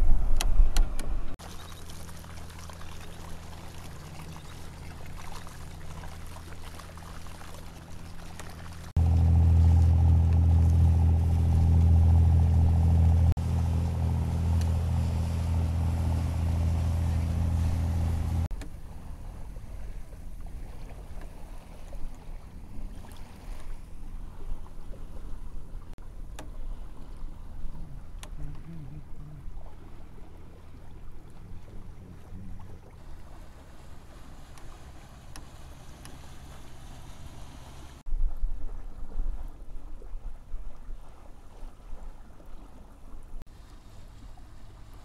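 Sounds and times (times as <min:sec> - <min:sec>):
water washing past hull: 0:00.0 - 0:45.0
wind: 0:00.0 - 0:45.0
water splashing: 0:00.9 - 0:45.0
outboard motor running: 0:01.0 - 0:38.0.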